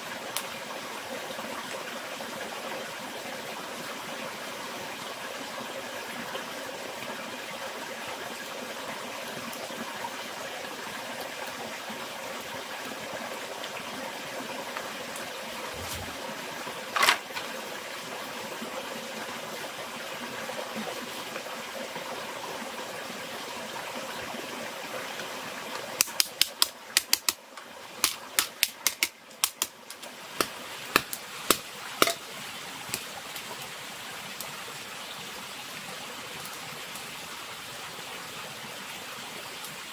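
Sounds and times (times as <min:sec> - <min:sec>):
sharp snap: 0:26.0 - 0:27.4
campfire crackling and popping: 0:26.0 - 0:32.3, 0:32.9 - 0:33.5.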